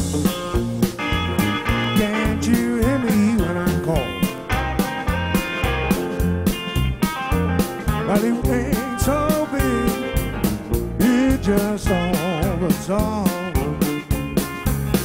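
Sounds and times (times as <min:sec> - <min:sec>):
amplified harmonica lead: 0:00.0 - 0:15.0
bass: 0:00.0 - 0:15.0
drum beat: 0:00.0 - 0:15.0
electric keyboard: 0:00.0 - 0:15.0.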